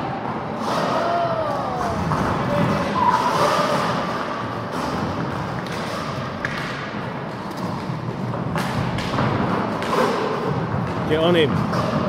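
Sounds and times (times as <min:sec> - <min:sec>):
skate wheels rolling on floor: 0:00.0 - 0:12.0.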